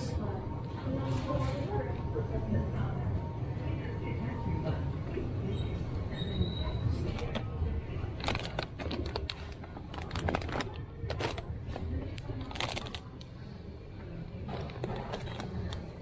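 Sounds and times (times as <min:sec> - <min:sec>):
plastic bags crinkling: 0:08.2 - 0:13.2.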